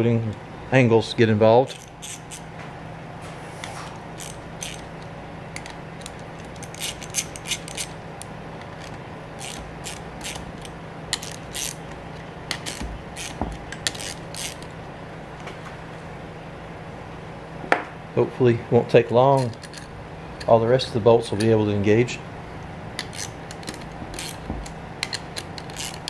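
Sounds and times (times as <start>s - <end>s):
ratchet wrench clicking: 1.7s - 2.5s, 4.2s - 5.0s, 5.6s - 8.0s, 8.7s - 11.9s, 12.5s - 14.7s, 19.4s - 19.9s, 23.0s - 26.0s.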